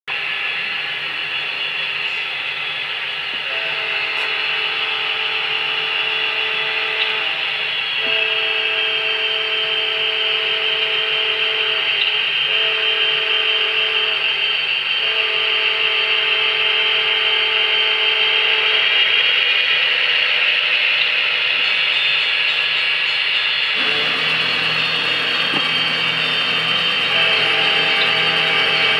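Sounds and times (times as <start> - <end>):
model diesel locomotive horn: 3.4 - 19.1, 23.8 - 28.9
steady mechanical running noise: 10.1 - 28.9.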